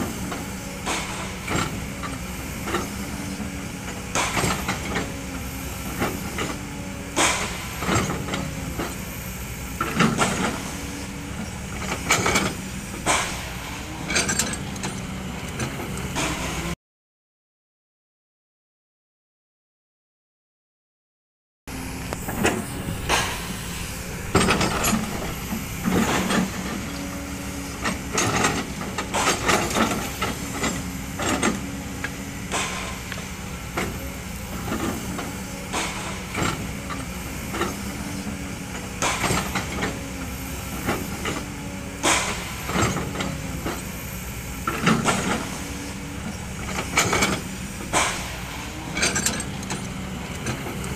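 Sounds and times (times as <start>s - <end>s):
excavator diesel engine running: 0.0s - 16.8s, 21.7s - 50.9s
metal clanks and knocks: 0.2s - 5.2s, 6.0s - 9.0s, 11.4s - 16.6s, 22.1s - 40.1s, 40.8s - 43.9s, 44.6s - 50.9s
hydraulic hiss: 21.7s - 50.9s.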